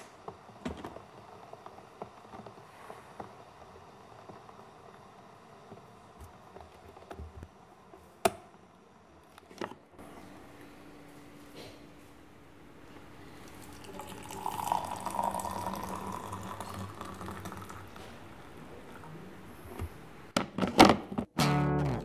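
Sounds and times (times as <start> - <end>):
milk pouring into glass: 13.4 - 18.6.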